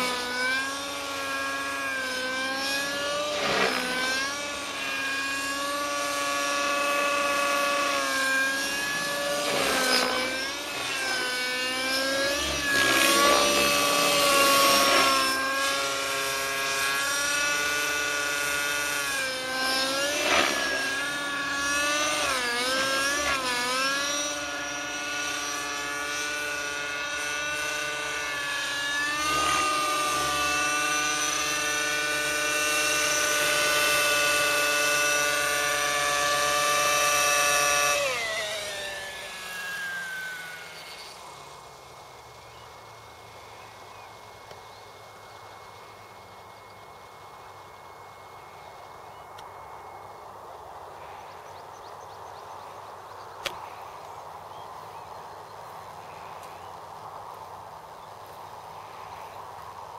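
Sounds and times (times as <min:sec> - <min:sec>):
rc helicopter engine and rotors: 0:00.0 - 0:59.9.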